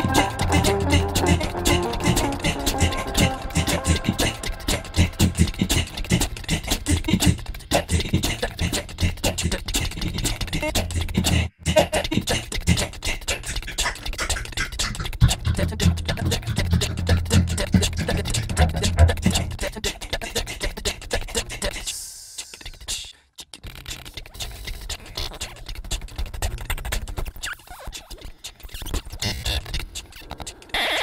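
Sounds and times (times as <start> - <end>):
low bass line: 0.0 - 6.0, 15.3 - 19.7
fast percussive beat: 0.0 - 21.6.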